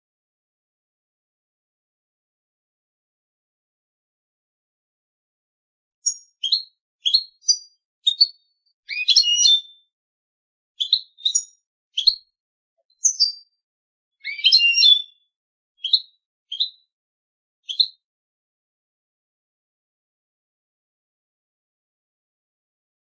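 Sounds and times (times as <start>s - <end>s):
goldfinch singing: 6.0s - 9.9s, 10.8s - 12.3s, 13.0s - 13.6s, 14.2s - 16.8s, 17.7s - 18.0s.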